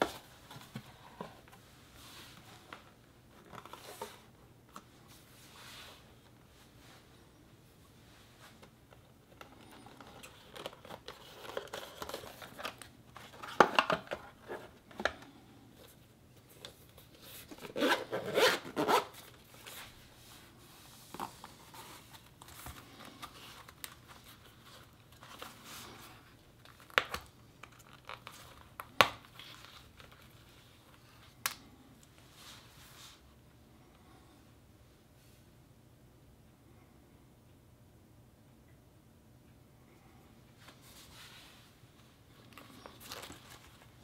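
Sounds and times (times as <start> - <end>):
zipper unzipping: 17.7 - 19.1.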